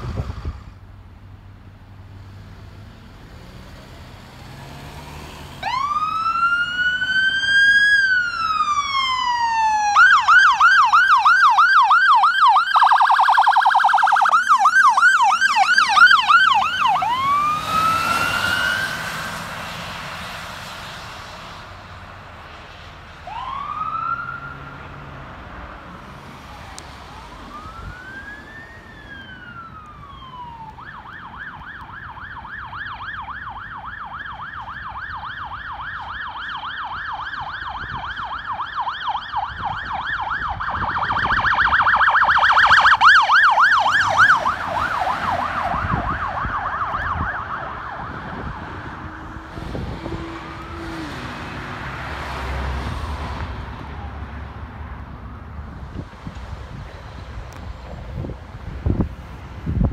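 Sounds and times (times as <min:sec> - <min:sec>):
electronic siren wailing and yelping: 0:05.6 - 0:19.1, 0:23.3 - 0:24.7, 0:26.4 - 0:51.5
second siren yelping: 0:05.6 - 0:19.1, 0:26.4 - 0:51.6.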